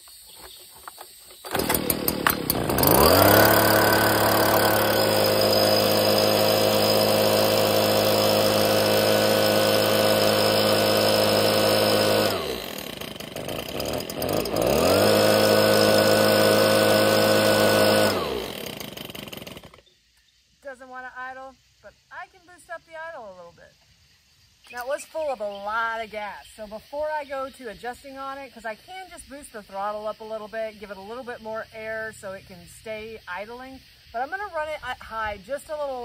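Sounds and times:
leaf blower engine running: 0:01.3 - 0:19.8
pull-start rope pulls: 0:01.4 - 0:19.8.

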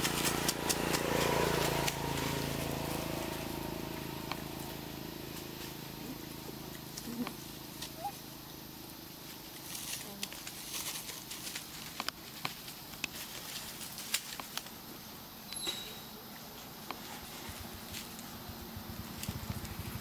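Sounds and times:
low steady hum: 0:00.0 - 0:20.0
faint ticks and rustles: 0:09.2 - 0:15.1, 0:16.3 - 0:20.0
short faint squeaks: 0:15.5 - 0:16.2.

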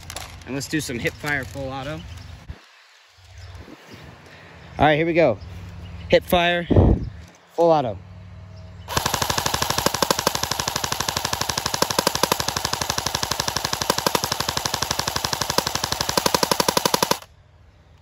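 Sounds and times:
airsoft gun full-auto burst: 0:08.9 - 0:17.3.

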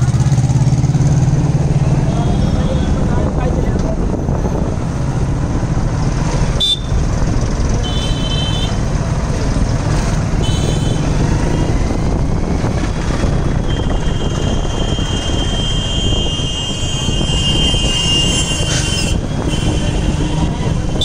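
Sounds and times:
vehicle engine rumbling: 0:00.0 - 0:21.0
car horns honking: 0:06.6 - 0:07.0, 0:07.8 - 0:08.8, 0:10.4 - 0:11.1, 0:13.6 - 0:21.0.

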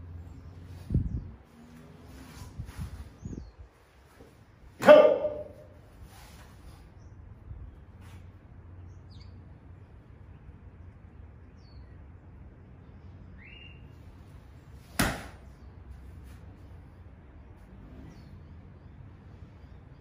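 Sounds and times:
faint bird-like chirps: 0:12.8 - 0:14.2
sharp snap of a strike: 0:15.0 - 0:15.4.

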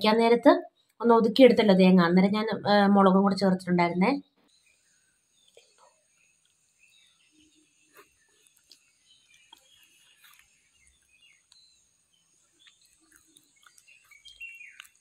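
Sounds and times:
faint chirps: 0:04.1 - 0:15.0
steady high hiss: 0:04.5 - 0:15.0.

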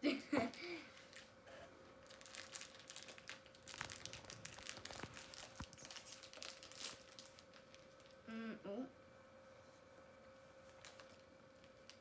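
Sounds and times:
plastic wrapper crinkling: 0:01.0 - 0:01.3, 0:02.0 - 0:08.2, 0:10.6 - 0:12.0.

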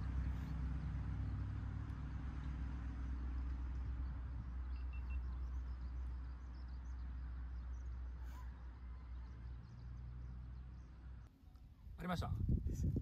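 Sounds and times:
faint high bird chirps: 0:03.9 - 0:12.0.

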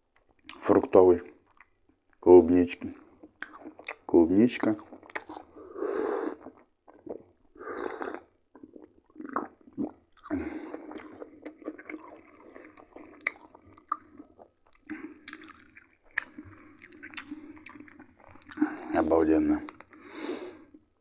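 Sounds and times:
chewing and wet mouth clicks: 0:00.2 - 0:00.8, 0:01.4 - 0:02.2, 0:02.8 - 0:05.6, 0:06.2 - 0:18.9, 0:19.5 - 0:20.1
man sipping and swallowing: 0:04.9 - 0:19.0.

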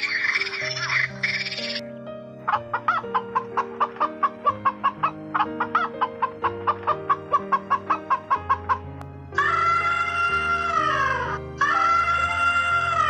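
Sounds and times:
high chattering noise: 0:00.0 - 0:01.8
background music: 0:00.0 - 0:13.0
hens clucking: 0:02.5 - 0:09.8.

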